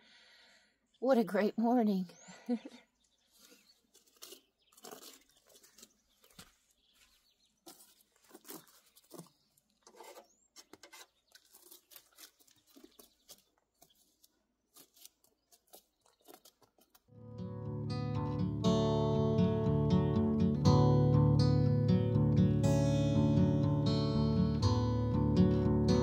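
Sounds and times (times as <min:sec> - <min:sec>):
mud scraping and crackling: 0:03.3 - 0:17.1.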